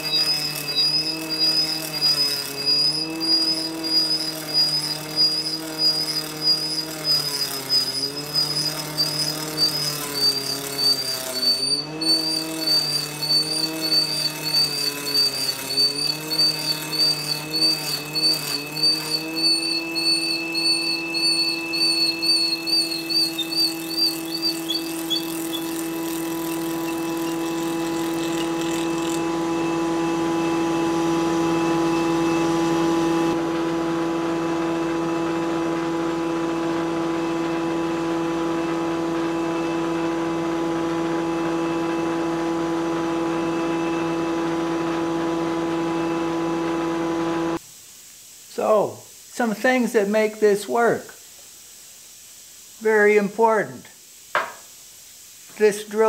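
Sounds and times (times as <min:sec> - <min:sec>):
warbling high whistle: 0:00.0 - 0:30.0
table saw cutting log: 0:00.0 - 0:47.6.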